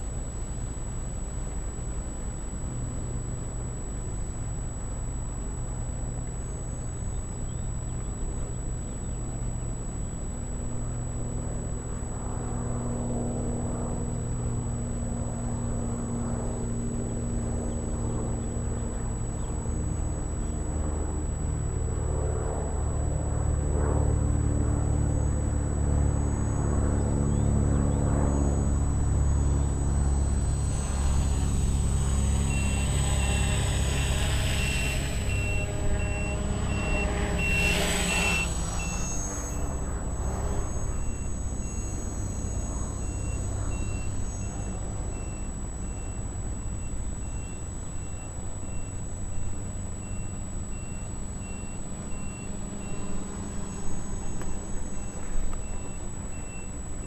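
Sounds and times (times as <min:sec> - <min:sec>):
vehicle engine rumbling: 0:00.0 - 0:57.0
steady hum: 0:13.6 - 0:57.0.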